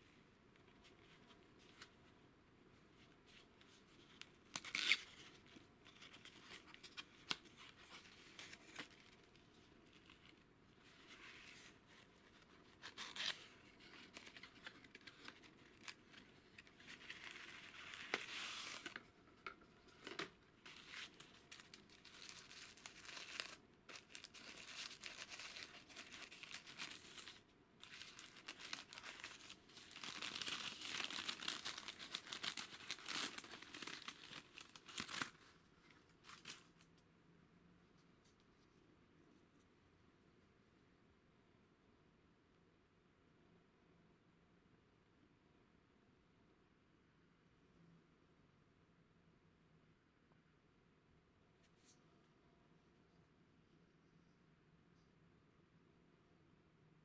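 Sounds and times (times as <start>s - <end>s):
paper wrapping rustling: 3.3s - 19.1s, 19.9s - 36.9s.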